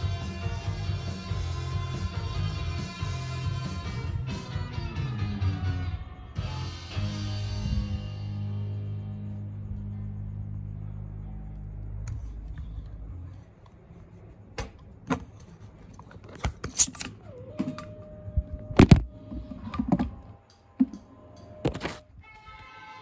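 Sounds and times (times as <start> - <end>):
background music: 0.0 - 9.0.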